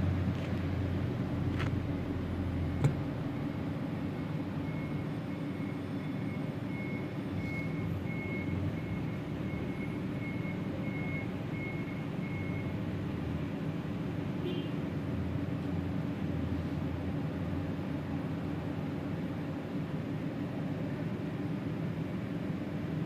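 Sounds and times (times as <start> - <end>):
low mechanical rumble: 0.0 - 5.7.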